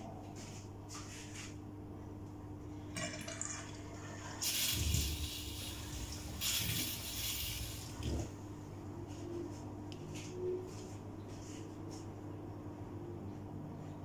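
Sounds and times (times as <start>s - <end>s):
water gushing: 3.3s - 8.2s.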